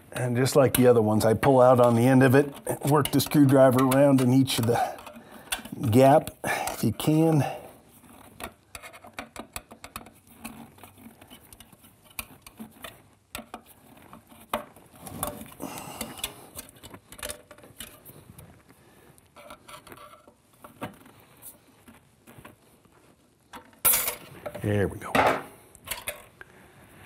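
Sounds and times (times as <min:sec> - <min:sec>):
screwdriver clicking and scraping metal: 0:00.1 - 0:07.3, 0:08.1 - 0:18.1.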